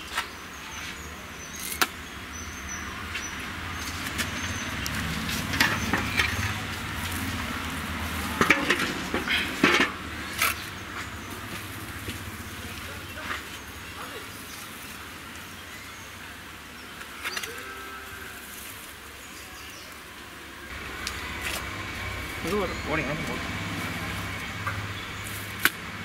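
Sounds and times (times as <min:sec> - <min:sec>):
shovel scraping soil: 0:00.0 - 0:02.0.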